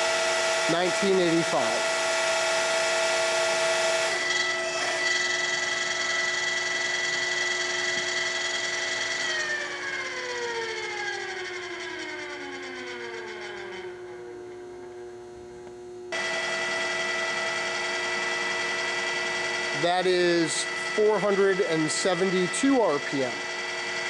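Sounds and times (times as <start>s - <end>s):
drill spindle gearing whine: 0.0s - 24.0s.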